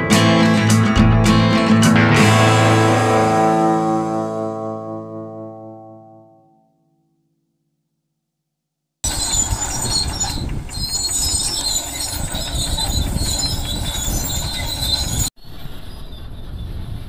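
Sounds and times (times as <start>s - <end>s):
diesel engine rumbling: 9.1s - 15.3s
steel tracks squealing and clanking: 9.1s - 17.0s.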